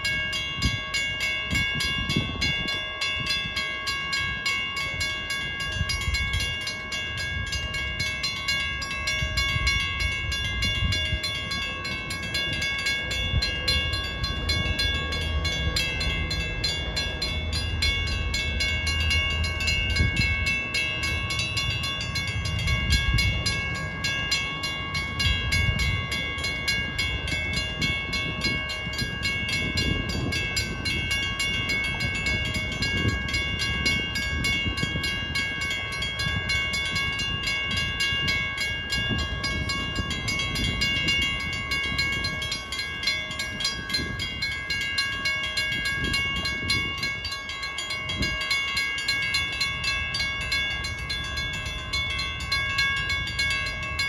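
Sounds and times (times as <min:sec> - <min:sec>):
electronic crossing bells ringing: 0:00.0 - 0:54.0.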